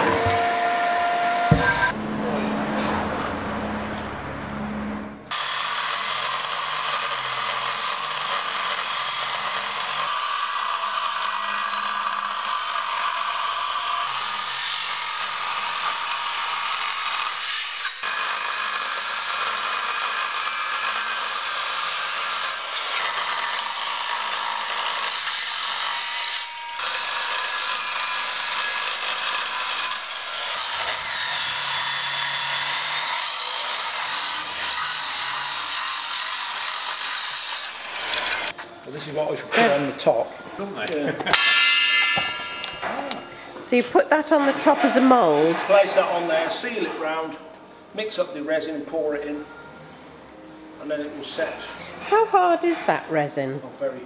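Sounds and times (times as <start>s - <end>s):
angle grinder cutting metal: 5.3s - 38.6s, 41.2s - 43.3s.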